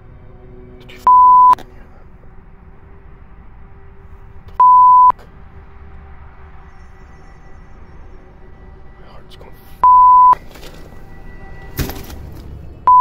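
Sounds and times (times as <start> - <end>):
faint low drone: 0.0 - 13.0
electronic censor bleeps: 1.0 - 1.6, 4.6 - 5.2, 9.8 - 10.4.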